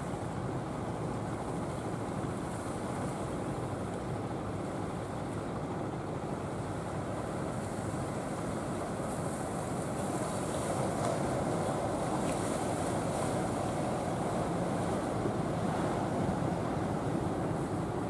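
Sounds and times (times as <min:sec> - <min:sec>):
boat engine droning: 0:00.0 - 0:18.0
surf washing: 0:06.8 - 0:18.0.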